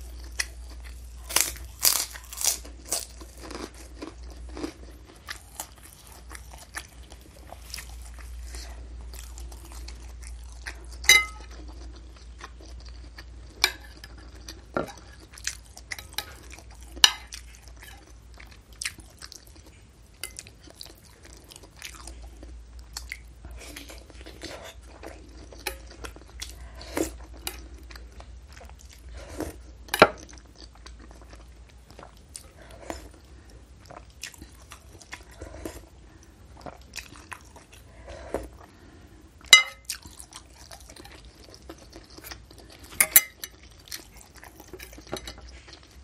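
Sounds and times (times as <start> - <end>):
close chewing with mouth clicks: 0.0 - 46.0
metal spoon clinking in bowl: 11.1 - 11.4, 39.6 - 39.9, 43.0 - 43.5.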